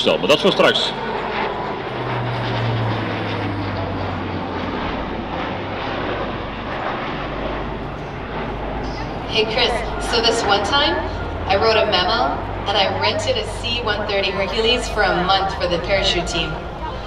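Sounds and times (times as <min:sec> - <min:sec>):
low hum: 0:00.0 - 0:17.0
turboprop engines droning: 0:00.0 - 0:17.0.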